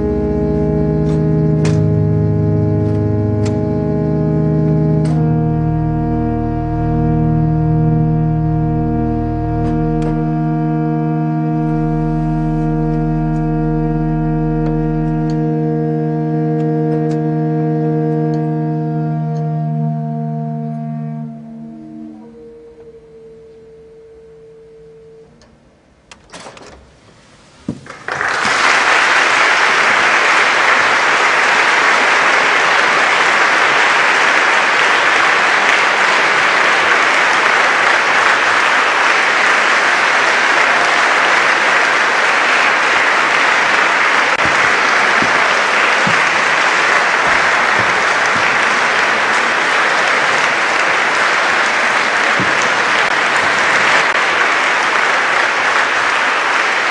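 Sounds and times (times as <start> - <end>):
pipe organ chord: 0.0 - 25.8, 28.2 - 56.9
audience applause: 27.8 - 56.9.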